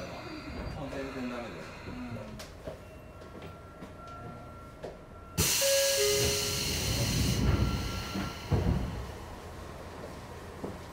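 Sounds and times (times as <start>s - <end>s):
train doors air hiss: 5.4s - 9.1s.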